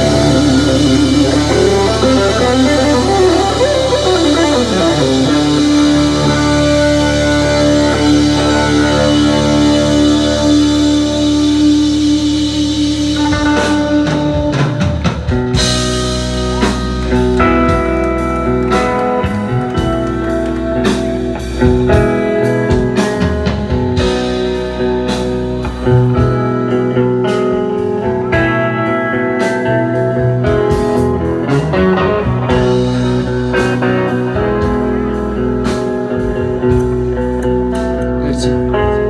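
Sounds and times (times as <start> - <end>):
bass guitar: 0.0 - 39.0
electric guitar lead: 0.0 - 39.0.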